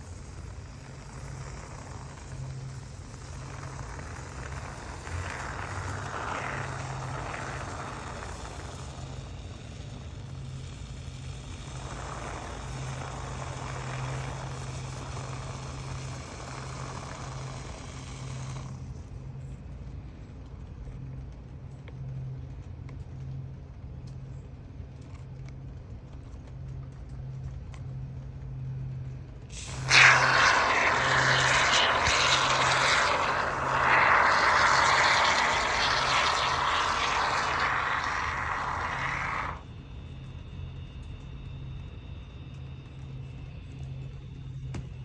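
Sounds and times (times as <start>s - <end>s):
aerosol foam spray hissing: 0.0s - 9.8s, 10.4s - 18.8s, 29.5s - 39.6s.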